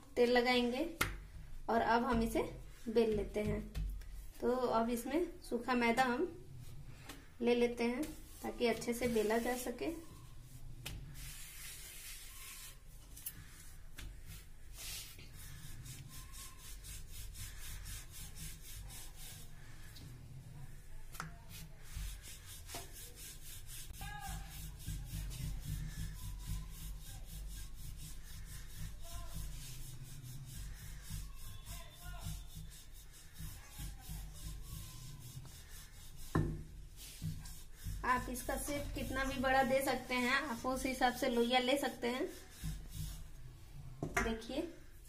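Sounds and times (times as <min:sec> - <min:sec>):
rolling pin rolling dough: 0:07.8 - 0:19.9, 0:20.8 - 0:43.4.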